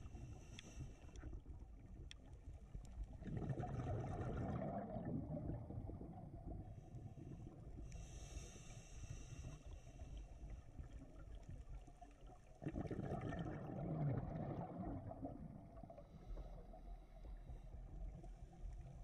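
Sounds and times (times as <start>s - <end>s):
bubbling exhaust underwater: 0.0s - 19.0s
scuba regulator hissing inhale: 7.9s - 10.5s.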